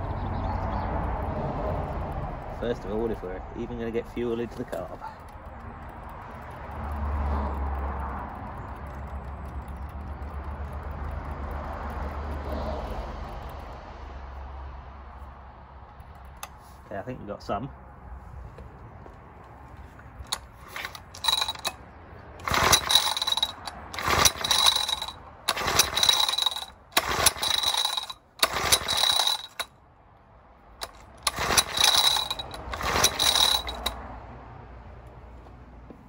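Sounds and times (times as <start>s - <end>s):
engine pull-starter ratcheting whir: 1.0s - 13.8s, 20.2s - 21.8s, 22.4s - 29.7s, 30.8s - 34.0s.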